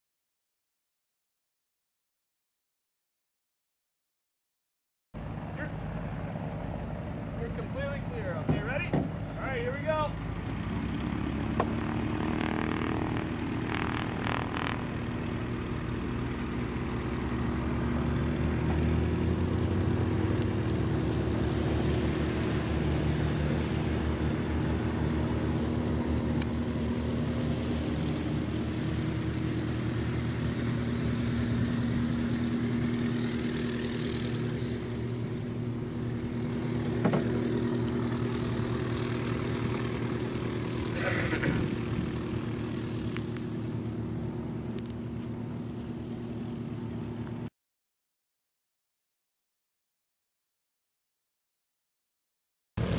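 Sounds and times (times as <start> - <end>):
propeller plane engine running: 5.2 - 47.5.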